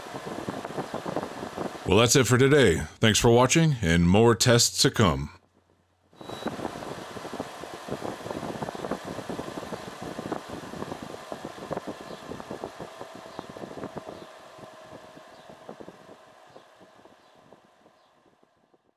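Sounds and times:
air conditioner running: 0.0s - 18.9s.

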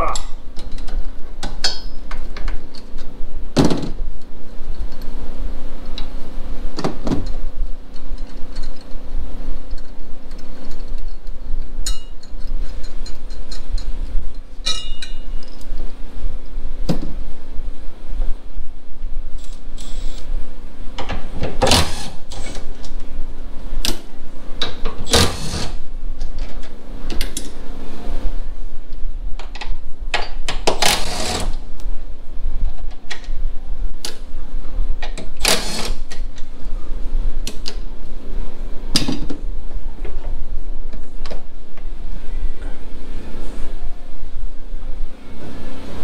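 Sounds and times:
cordless electric ratchet running: 25.1s - 25.8s, 35.4s - 36.1s.

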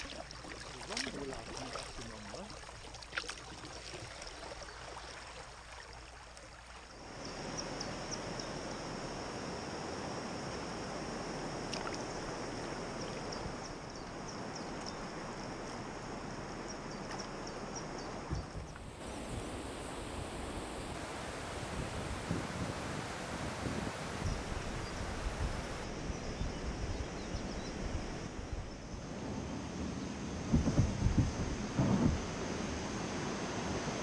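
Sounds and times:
small drips and splashes: 0.0s - 7.0s, 11.7s - 12.4s
river water rushing: 0.0s - 26.0s.

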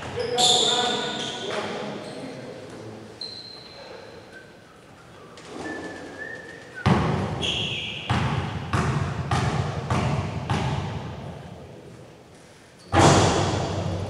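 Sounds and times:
sneaker squeak on floor: 0.0s - 2.3s, 3.2s - 4.2s, 7.4s - 8.2s
basketball bouncing on gym floor: 6.8s - 11.3s.

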